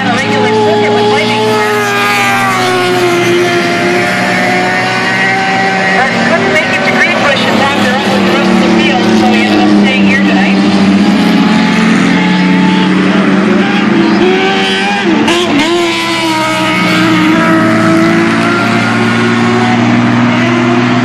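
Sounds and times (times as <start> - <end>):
racing truck engines running loudly: 0.0 - 21.0.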